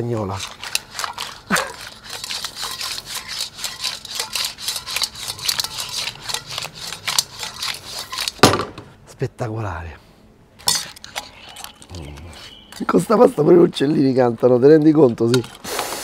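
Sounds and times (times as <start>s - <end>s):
shells clattering in a metal pan: 0.3s - 8.5s, 10.6s - 11.9s.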